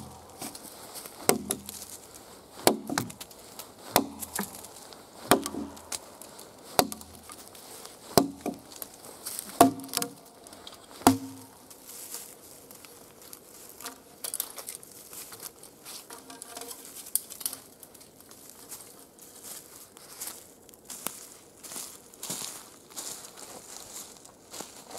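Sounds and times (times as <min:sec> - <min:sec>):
axe chopping log: 0:00.0 - 0:01.9, 0:02.5 - 0:07.5, 0:08.1 - 0:11.6
faint rustling and crackling: 0:00.0 - 0:24.9.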